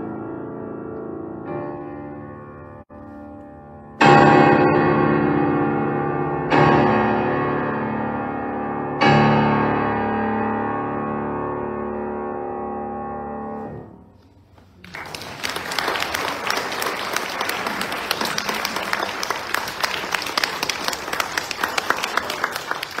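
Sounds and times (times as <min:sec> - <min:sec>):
audience applauding: 0:14.8 - 0:23.0.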